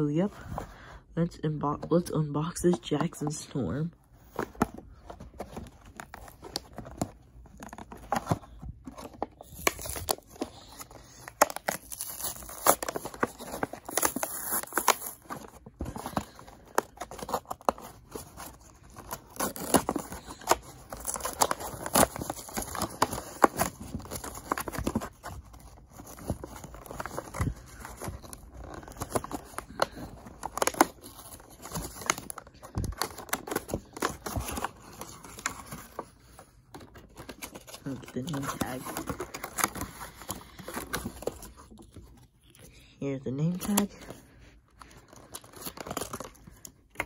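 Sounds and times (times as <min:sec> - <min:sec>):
plastic packaging being torn open: 0:05.7 - 0:36.1, 0:45.0 - 0:47.0.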